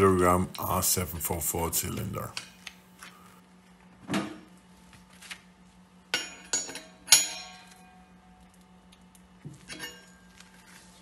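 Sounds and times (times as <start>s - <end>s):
ringing metal strikes: 6.1s - 8.0s.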